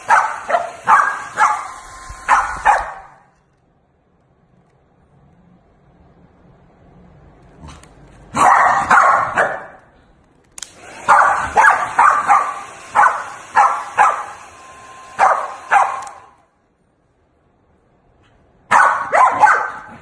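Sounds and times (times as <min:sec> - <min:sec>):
dog barking: 0:00.0 - 0:03.3, 0:08.3 - 0:09.9, 0:11.0 - 0:14.4, 0:15.2 - 0:16.4, 0:18.7 - 0:20.0.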